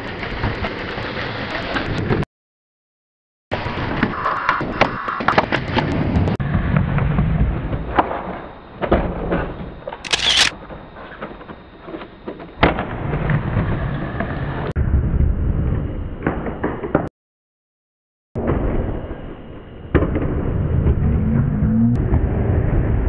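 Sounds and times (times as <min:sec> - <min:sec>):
skateboard wheels rumbling on wood: 0:00.0 - 0:02.2, 0:03.6 - 0:09.8, 0:10.7 - 0:14.7.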